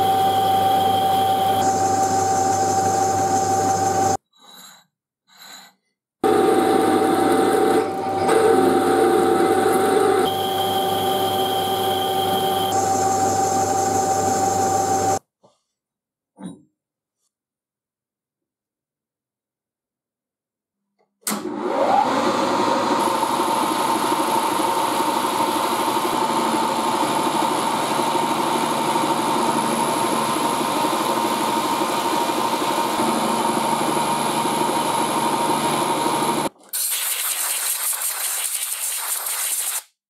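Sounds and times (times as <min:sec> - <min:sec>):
milling spindle whine: 0:00.0 - 0:04.2, 0:06.2 - 0:15.2.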